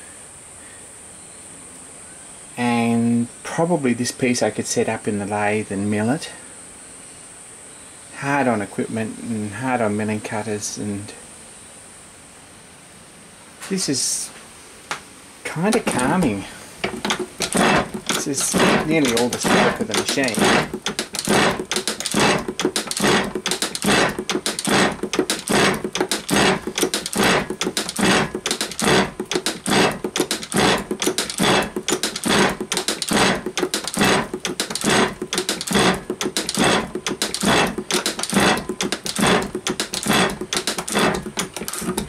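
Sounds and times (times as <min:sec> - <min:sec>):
metal shaper scraping and clattering: 0:15.5 - 0:42.0.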